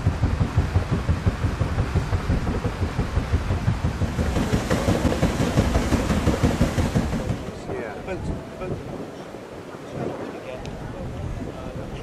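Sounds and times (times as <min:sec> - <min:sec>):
hiss of wash and air: 0:00.0 - 0:07.6
steam engine rhythmic thumping: 0:00.0 - 0:07.8.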